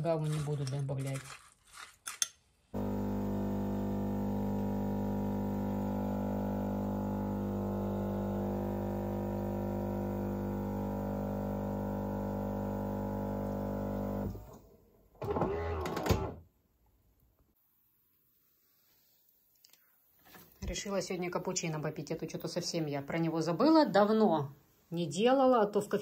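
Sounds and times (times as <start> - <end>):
wavering burst from espresso machine: 2.8 - 14.2
espresso machine humming: 2.8 - 14.5.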